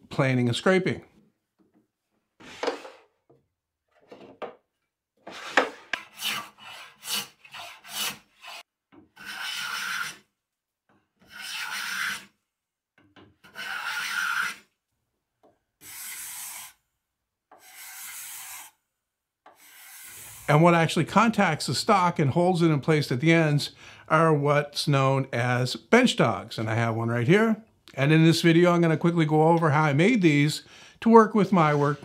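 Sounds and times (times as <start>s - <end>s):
hand plane on wood: 5.3s - 8.6s, 9.2s - 10.2s, 11.2s - 12.3s, 13.4s - 14.6s, 17.6s - 18.7s, 19.6s - 20.5s
card scraper strokes on wood: 5.3s - 10.2s, 13.4s - 14.6s, 15.8s - 16.8s, 17.5s - 18.8s, 19.5s - 20.5s.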